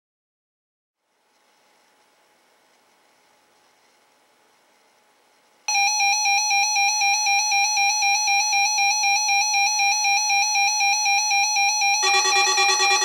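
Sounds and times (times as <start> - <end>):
pulsing electronic alarm beep: 5.8 - 13.0.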